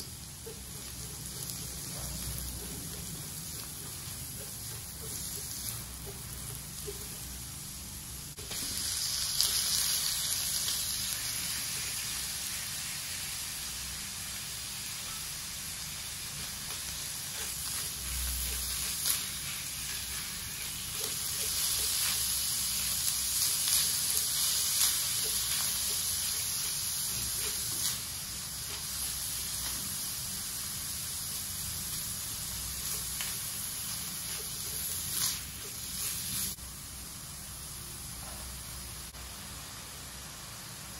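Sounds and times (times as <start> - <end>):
meat sizzling in a wok: 0.0 - 40.9
spatula tapping and scraping: 0.4 - 7.2.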